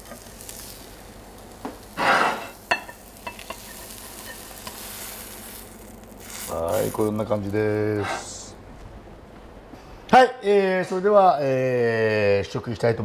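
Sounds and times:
omelette faintly sizzling: 0:00.0 - 0:08.6.

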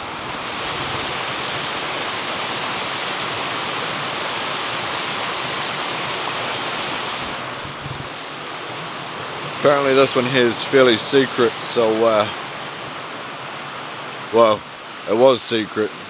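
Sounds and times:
waterfall and stream rushing: 0:00.0 - 0:16.0.

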